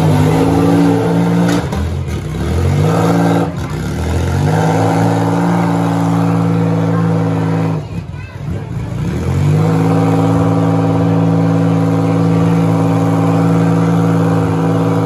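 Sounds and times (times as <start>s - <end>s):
car engines revving hard: 0.0s - 15.0s.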